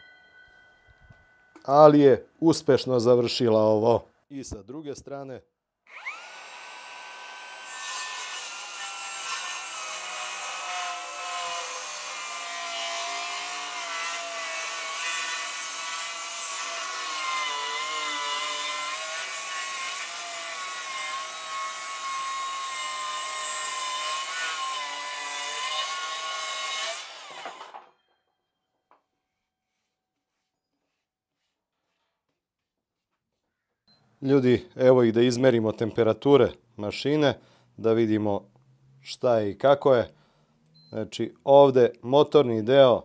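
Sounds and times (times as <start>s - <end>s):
circular saw cutting wood: 5.9s - 27.9s.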